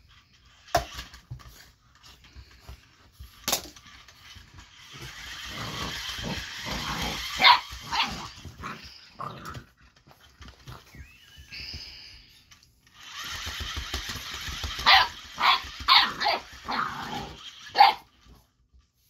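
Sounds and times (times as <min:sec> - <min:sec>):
puppy barking: 0:07.3 - 0:08.4, 0:14.8 - 0:17.0, 0:17.7 - 0:18.1.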